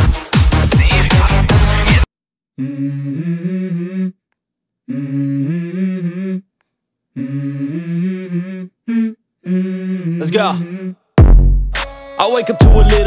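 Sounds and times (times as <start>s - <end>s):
person humming: 2.6s - 4.2s, 4.9s - 6.5s, 7.1s - 11.1s.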